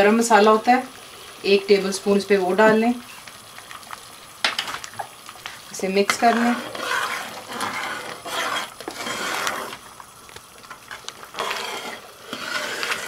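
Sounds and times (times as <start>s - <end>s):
dal simmering: 0.0s - 13.0s
spoon scraping a metal pot: 6.1s - 9.8s, 11.3s - 13.0s.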